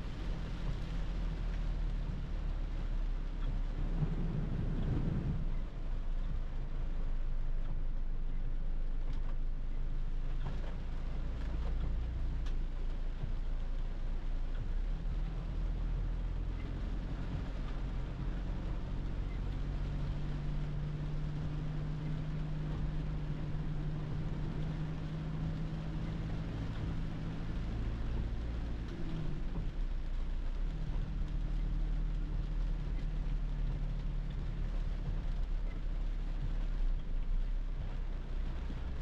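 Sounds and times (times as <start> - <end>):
rain on car body: 0.0 - 39.0.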